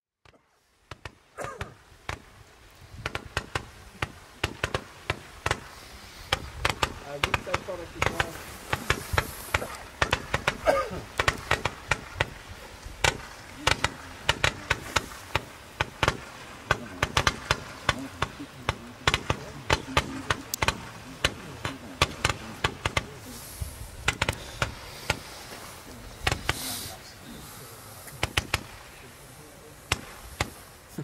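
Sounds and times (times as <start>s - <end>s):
roman candle pops: 6.3s - 12.4s, 13.0s - 23.3s, 24.0s - 26.9s, 28.0s - 28.9s.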